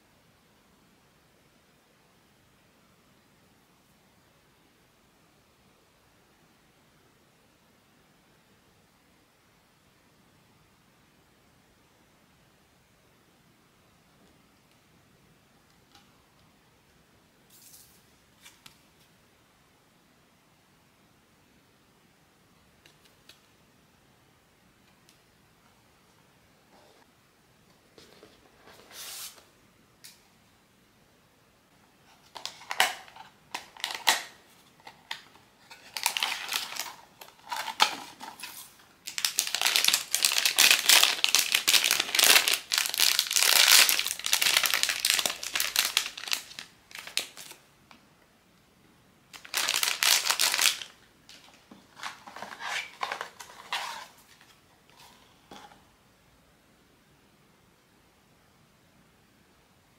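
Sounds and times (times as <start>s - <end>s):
packaging crinkling and tearing: 32.2s - 47.6s, 49.3s - 54.4s.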